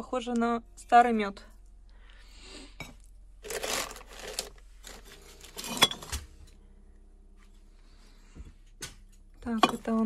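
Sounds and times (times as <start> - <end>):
glass scraping against paper: 3.4 - 6.1.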